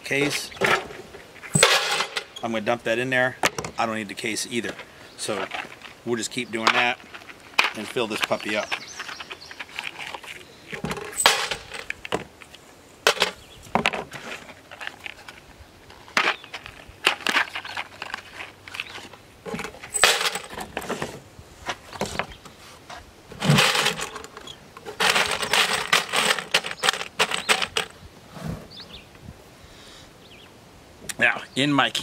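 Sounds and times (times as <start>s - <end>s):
cartridges clattering into metal can: 1.5s - 2.4s, 10.8s - 11.9s, 13.1s - 13.4s, 19.6s - 20.6s, 23.4s - 27.9s.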